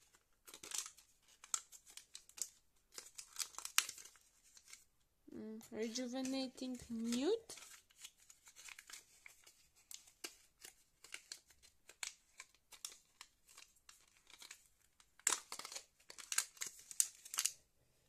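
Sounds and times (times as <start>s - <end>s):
packaging crinkling: 0.0s - 4.9s, 5.8s - 17.6s.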